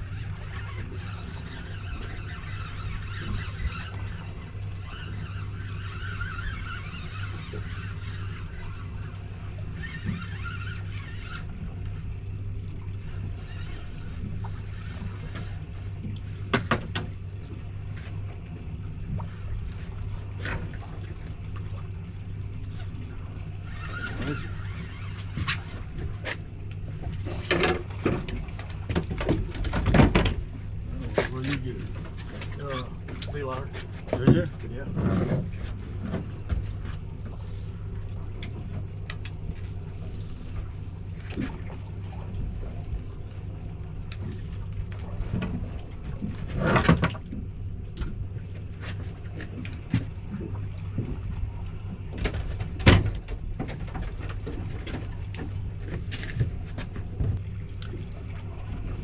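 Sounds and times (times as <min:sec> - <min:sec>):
outboard motor idling: 0:00.0 - 0:59.0.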